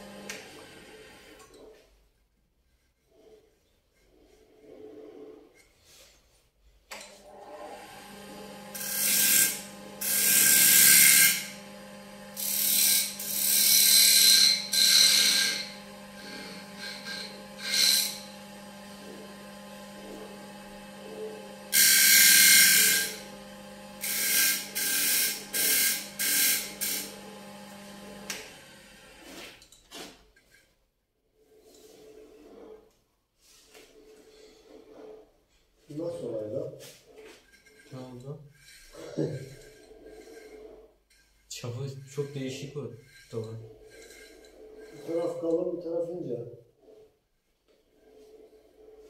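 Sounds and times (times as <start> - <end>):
lathe motor hum: 0.0 - 1.4, 7.2 - 29.5, 35.9 - 45.8
tool scraping spinning wood: 7.1 - 49.0.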